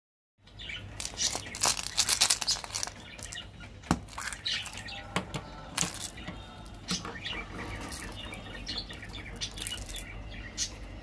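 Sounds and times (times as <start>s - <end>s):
plastic ball clicking and crackling: 1.0s - 4.9s, 5.8s - 6.2s.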